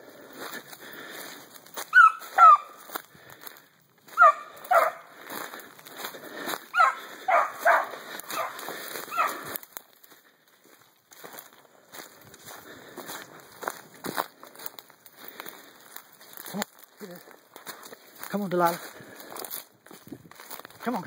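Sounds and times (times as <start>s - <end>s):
footsteps rustling dry leaves: 0.0s - 21.0s
puppy yipping barks: 1.9s - 2.8s, 4.2s - 5.1s, 6.8s - 9.4s.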